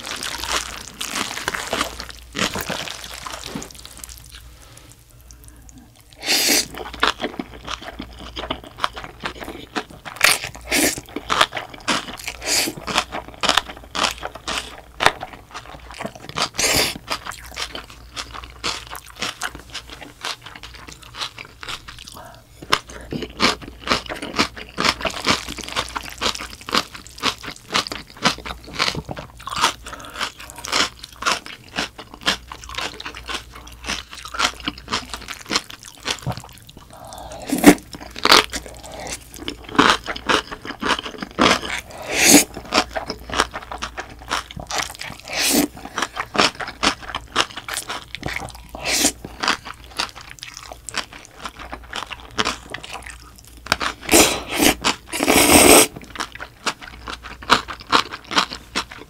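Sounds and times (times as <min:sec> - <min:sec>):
crisp crunching and chewing: 0:00.0 - 0:59.0
noodle slurps: 0:41.8 - 0:42.5, 0:45.2 - 0:45.8, 0:48.8 - 0:49.2, 0:54.0 - 0:56.0.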